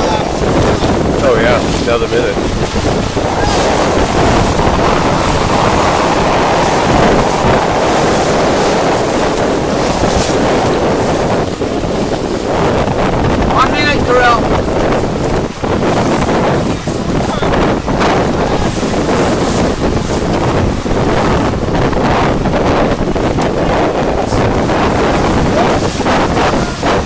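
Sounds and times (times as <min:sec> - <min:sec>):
choppy ocean water rushing: 0:00.0 - 0:27.0
wind buffeting microphone: 0:00.0 - 0:27.0
person shouting: 0:03.3 - 0:03.8.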